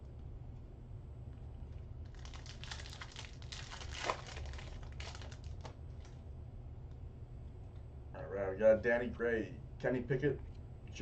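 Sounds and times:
foil wrapper crinkling and tearing: 2.0 - 6.2.

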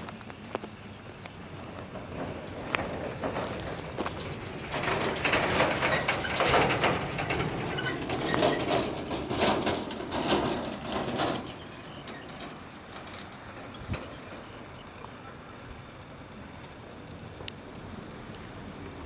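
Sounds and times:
footsteps crunching on dry earth: 0.0 - 6.8.

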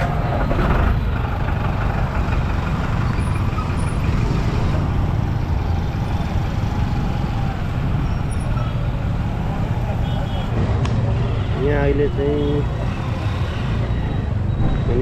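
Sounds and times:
bulldozer diesel engine rumbling: 0.0 - 10.7.

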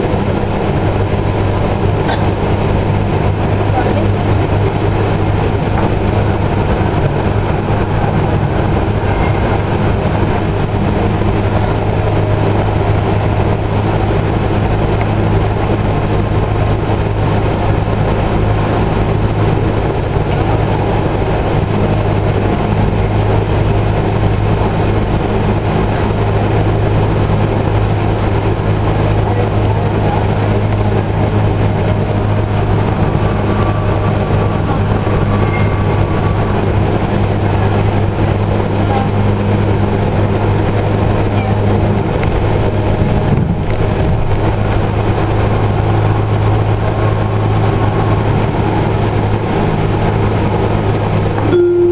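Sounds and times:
constant low hum: 0.0 - 51.9
light rail car running noise: 0.0 - 51.9.

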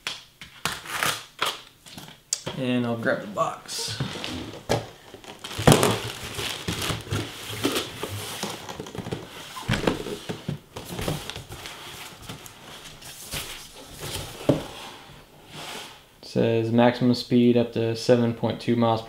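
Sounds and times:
cardboard scraping: 3.8 - 16.0
box knocks and thumps: 3.9 - 11.6
packing rustling: 3.9 - 14.7.

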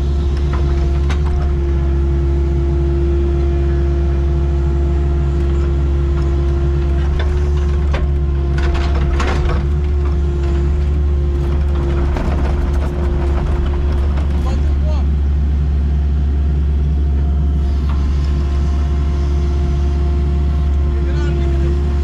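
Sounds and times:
constant whine: 0.0 - 22.0
excavator engine drone: 0.0 - 22.0
metallic clanks and knocks: 7.0 - 14.9.

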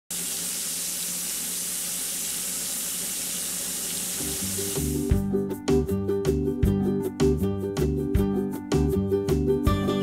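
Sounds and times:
steak sizzling in a pan: 0.1 - 5.2
music: 4.2 - 10.0.

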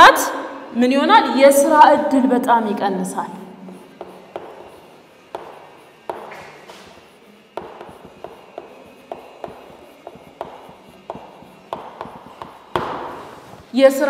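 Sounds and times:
sharp taps writing on a board: 3.8 - 13.7.

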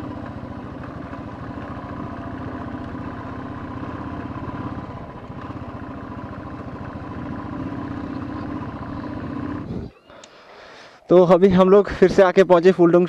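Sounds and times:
motorcycle engine running: 0.0 - 10.1.

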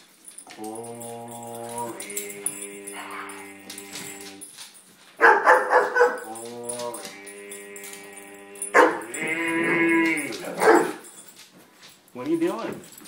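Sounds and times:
dog whining and howling: 0.4 - 4.5, 5.3 - 11.1
dog barking: 5.2 - 6.3, 8.7 - 9.2, 10.6 - 11.0.

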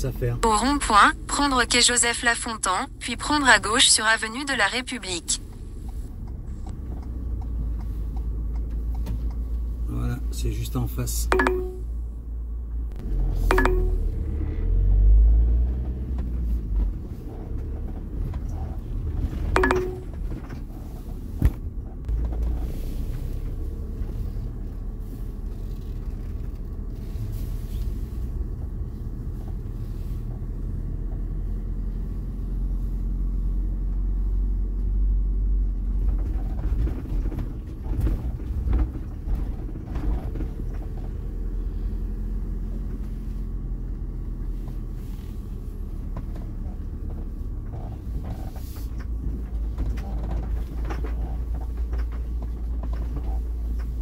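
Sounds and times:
van engine and road rumble: 0.0 - 54.0
brief tones: 11.3 - 11.9, 13.5 - 14.5, 19.6 - 20.2.

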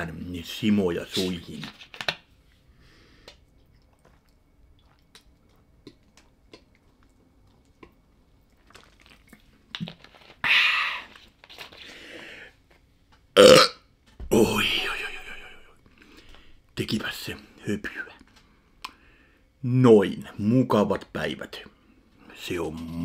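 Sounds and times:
person gulping and swallowing: 3.3 - 11.5, 13.4 - 16.5.

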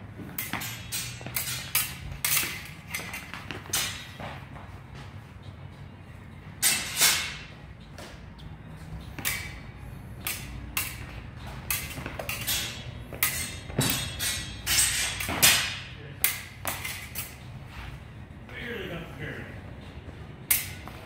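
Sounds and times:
steel swords clashing and scraping: 0.3 - 4.2, 6.6 - 7.5, 9.0 - 18.1, 20.5 - 20.9
feet stamping on rubber mats: 2.4 - 5.3.

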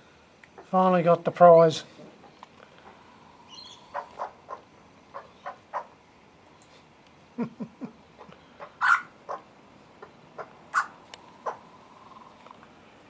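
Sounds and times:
soft short bird calls: 3.5 - 5.9
young magpies squawking: 3.5 - 6.0, 8.5 - 11.7.

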